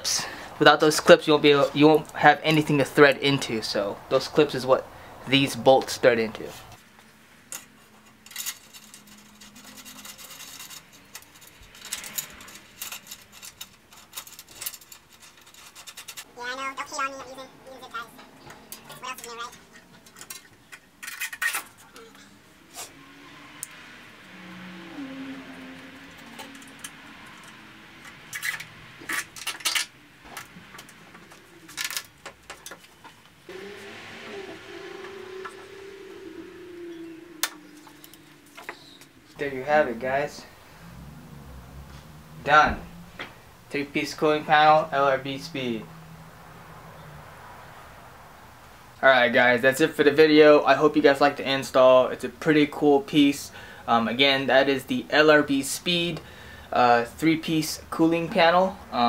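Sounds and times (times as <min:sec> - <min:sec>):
small metallic clicks and scrapes: 0:06.5 - 0:16.3, 0:18.2 - 0:22.9, 0:26.0 - 0:33.4
small metal parts clinking: 0:07.5 - 0:16.3, 0:19.5 - 0:22.2, 0:26.1 - 0:32.9.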